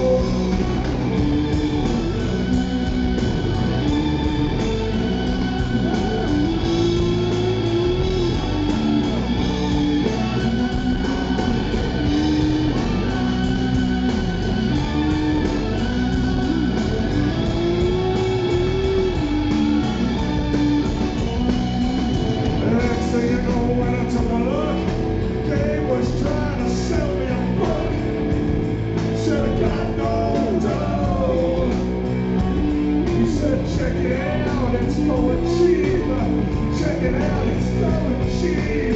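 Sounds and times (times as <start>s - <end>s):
man singing: 0.0s - 2.2s, 22.4s - 28.4s, 29.0s - 38.9s
drum and cymbal hits: 0.0s - 38.9s
live rock band: 0.0s - 38.9s.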